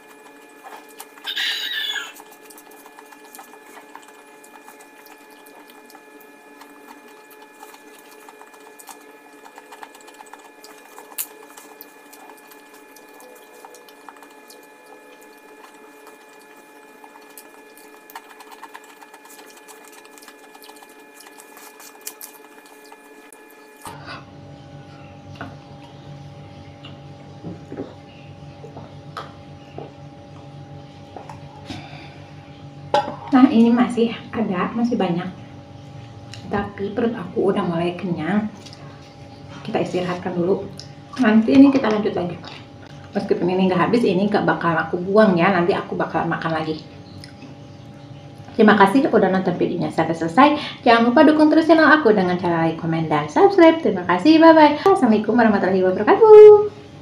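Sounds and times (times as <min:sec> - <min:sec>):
person chewing crunchy food: 0:00.0 - 0:24.0
deeper hum: 0:00.0 - 0:57.0
mechanical hum: 0:00.0 - 0:57.0.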